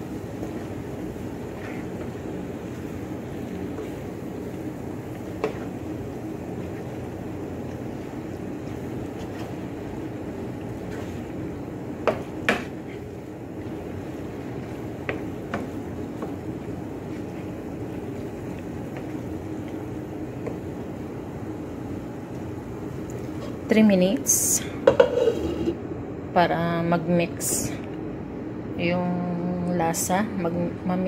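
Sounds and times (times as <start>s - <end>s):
wooden spatula stirring in metal pan: 0.0s - 21.2s, 24.9s - 25.7s
spatula knocking against pan: 12.0s - 12.7s.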